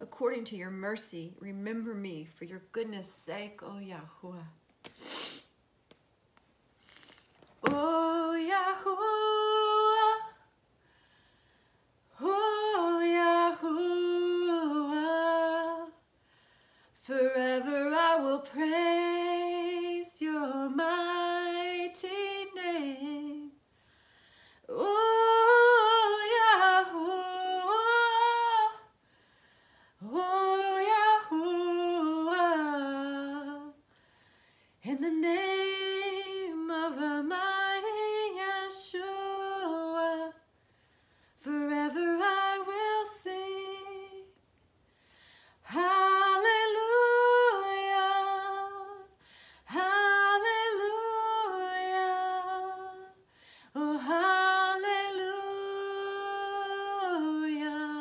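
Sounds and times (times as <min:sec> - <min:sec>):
woman singing unaccompanied: 0:07.6 - 0:10.5, 0:12.1 - 0:16.0, 0:17.0 - 0:23.6, 0:24.7 - 0:28.9, 0:30.0 - 0:33.8, 0:34.8 - 0:40.4, 0:41.4 - 0:44.4, 0:45.6 - 0:53.2, 0:53.8 - 0:58.0.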